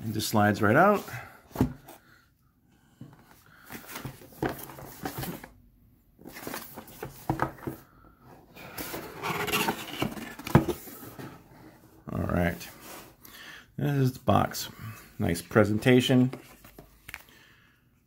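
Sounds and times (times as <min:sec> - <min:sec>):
cardboard box rustling: 0:03.8 - 0:05.6, 0:06.2 - 0:07.8, 0:08.7 - 0:11.5.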